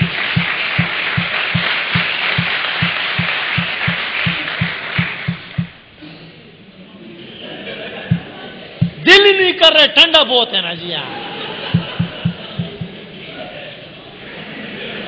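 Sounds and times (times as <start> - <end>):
audience applause: 0.0 - 5.7
music with fast drum beat: 0.0 - 5.8, 8.1 - 9.1, 11.8 - 12.9.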